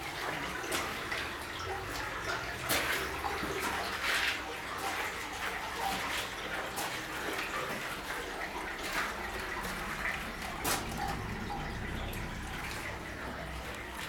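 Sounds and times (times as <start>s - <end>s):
water trickling through stone channel: 0.0s - 14.0s
sharp clicks or drips: 8.7s - 14.0s.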